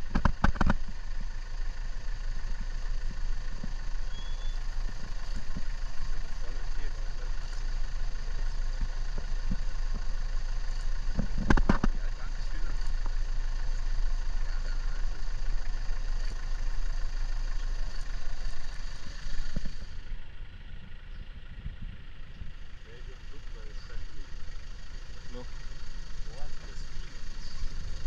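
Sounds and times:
vehicle engine idling: 0.0s - 28.0s.

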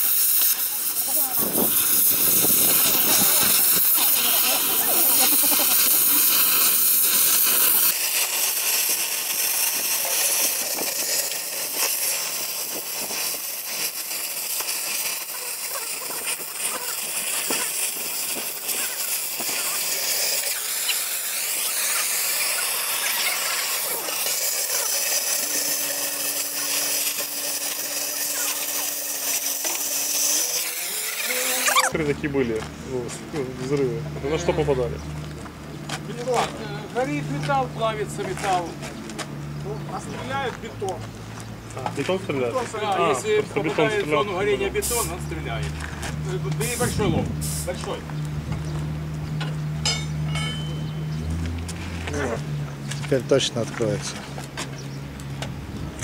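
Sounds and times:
sharp pops and crackles: 0.0s - 30.0s
cutting torch hissing: 0.0s - 33.0s, 36.0s - 55.4s.

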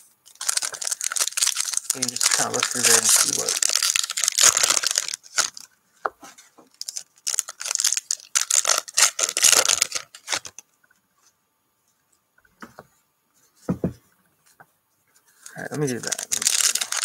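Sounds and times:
foil pack tearing and crinkling: 0.3s - 5.7s, 6.8s - 10.6s, 16.0s - 17.0s
soft knock: 13.7s - 14.0s.

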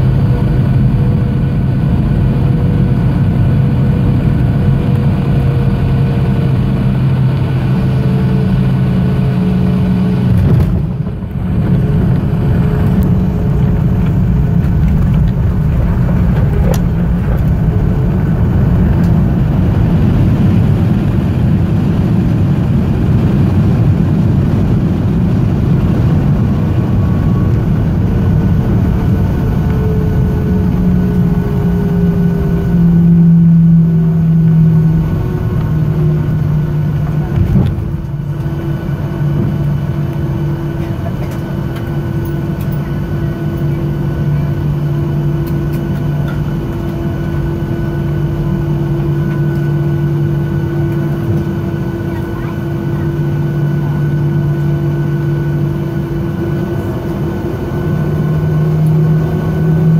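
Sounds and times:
jet engines and wheels roaring: 0.0s - 59.9s
falling whine: 3.5s - 59.9s.

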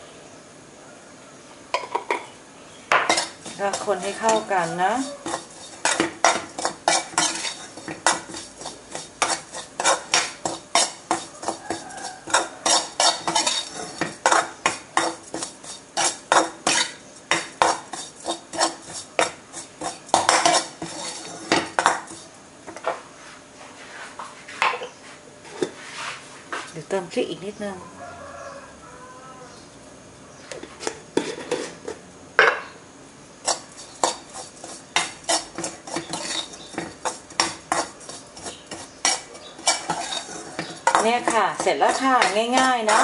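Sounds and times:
metal spatula scraping wok: 3.0s - 22.4s, 30.6s - 32.0s, 33.4s - 43.0s.

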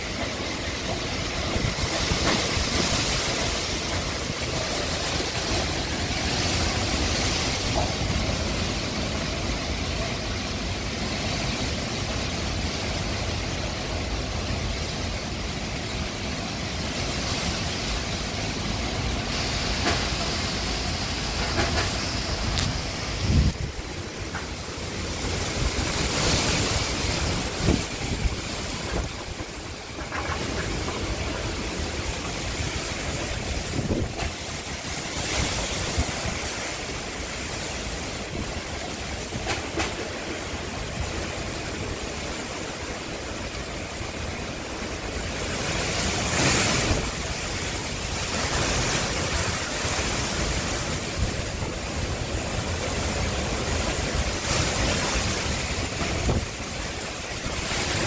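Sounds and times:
wind rumbling on microphone: 0.0s - 58.0s
leaves rushing and thrashing: 16.9s - 58.0s.

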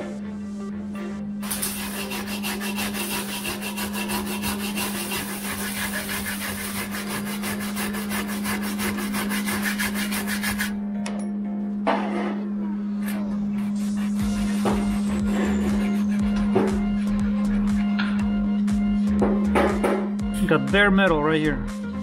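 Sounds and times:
wire brush scrubbing metal: 1.4s - 10.8s.

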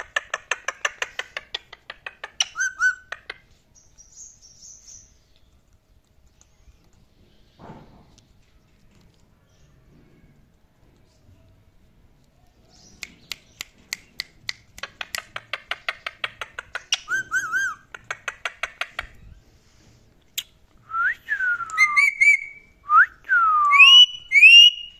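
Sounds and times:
parakeet clicking: 0.0s - 3.4s, 12.9s - 17.2s, 17.8s - 19.2s.

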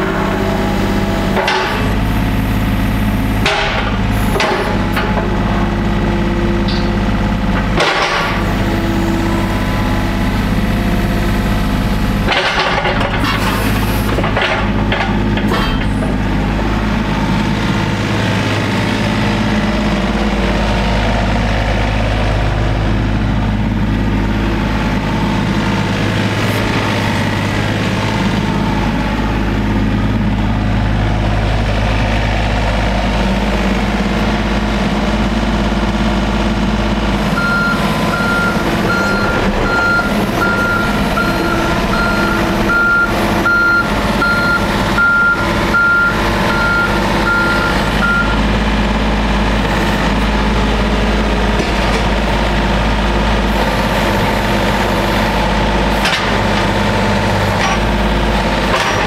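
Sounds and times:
excavator diesel engine under load: 0.0s - 59.0s
travel alarm beeping: 37.4s - 48.4s.

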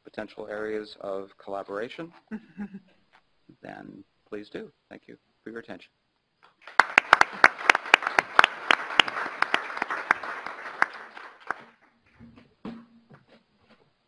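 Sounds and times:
sharp claps: 6.4s - 11.8s
audience applauding: 6.6s - 11.8s.

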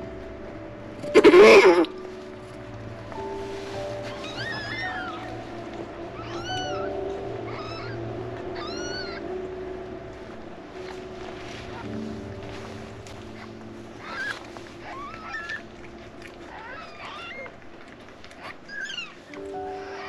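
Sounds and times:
soft background music: 0.0s - 20.0s
kittens mewing: 1.0s - 2.0s, 4.0s - 9.3s, 13.3s - 20.0s.

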